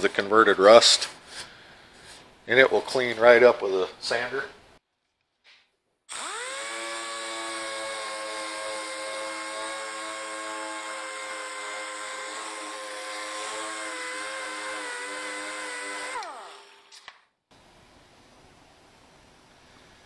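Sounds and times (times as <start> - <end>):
rotary disc sander on steel: 6.1 - 16.9.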